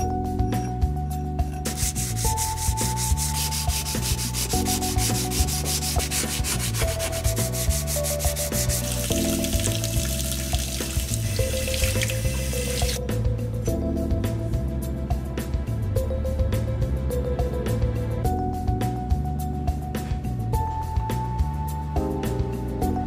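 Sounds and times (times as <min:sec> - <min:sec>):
abrasive scrubbing on steel: 0:01.7 - 0:09.1.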